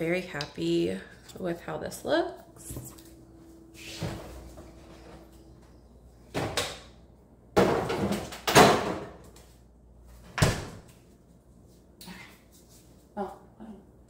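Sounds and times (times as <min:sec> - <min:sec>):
things clattering on fridge shelves: 0:07.6 - 0:09.4.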